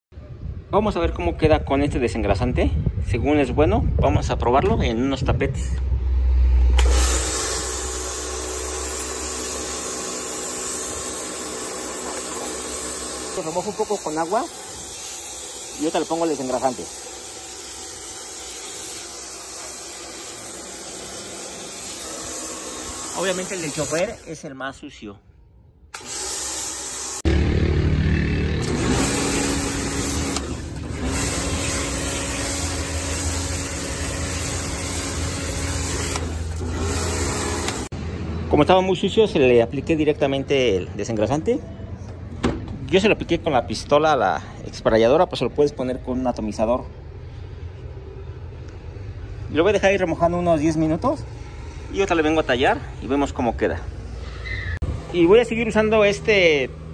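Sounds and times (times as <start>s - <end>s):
pressure washer motor humming: 6.6s - 24.4s, 25.9s - 38.0s, 50.8s - 53.2s
pressure washer spraying mat: 6.7s - 24.5s, 26.0s - 27.4s, 28.6s - 37.9s.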